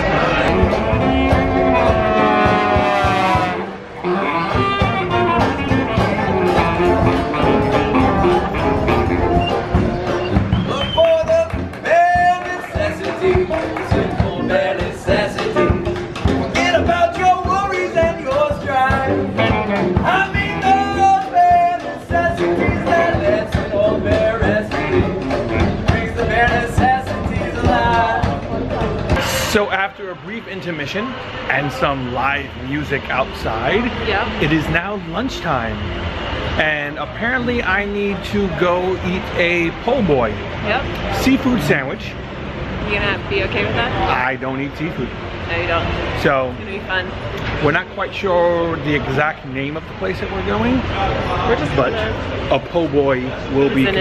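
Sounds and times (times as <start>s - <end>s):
brass band jazz: 0.0s - 29.8s
steady drum beat: 0.0s - 31.0s
man singing: 10.7s - 15.9s, 16.5s - 28.5s.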